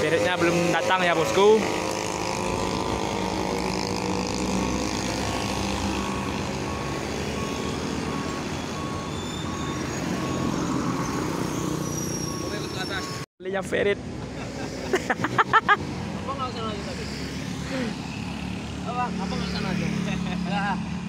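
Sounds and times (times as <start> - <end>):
reversing alarm beeping: 4.5 - 13.3.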